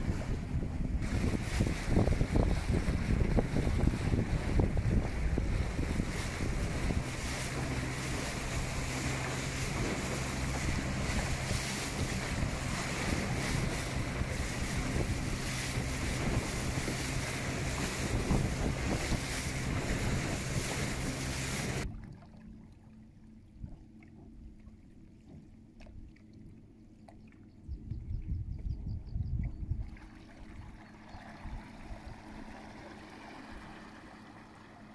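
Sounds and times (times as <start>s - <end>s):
wind buffeting microphone: 0.0s - 21.9s, 27.7s - 30.1s
faint water sounds: 0.0s - 34.9s
rushing wake water: 0.0s - 34.9s
steady low hum: 0.0s - 34.9s.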